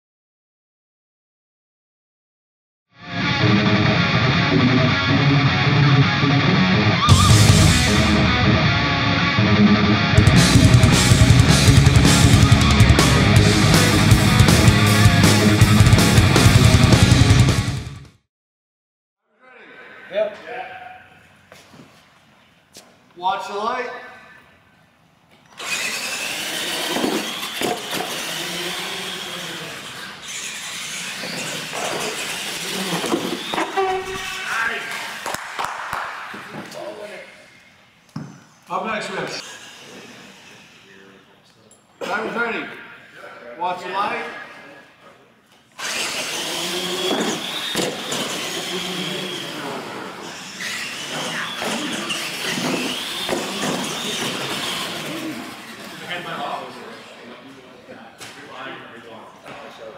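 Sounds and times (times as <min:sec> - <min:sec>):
electric motors whining: 0:25.5 - 0:35.2, 0:39.3 - 0:41.2, 0:45.8 - 0:57.0
tyres on concrete: 0:26.4 - 0:34.4.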